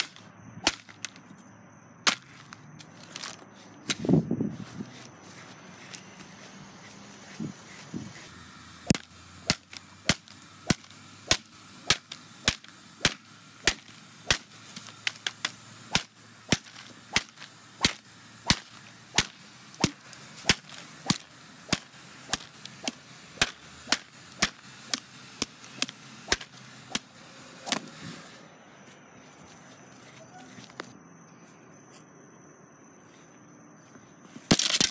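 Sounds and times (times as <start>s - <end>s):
whip cracks striking package: 0.0s - 1.2s, 8.9s - 27.9s, 34.5s - 34.9s.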